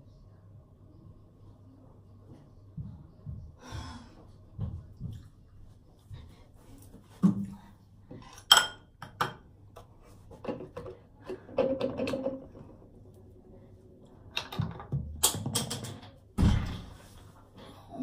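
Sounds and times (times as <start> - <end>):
kitchenware clinking and knocking: 10.4 - 12.6, 14.4 - 16.2.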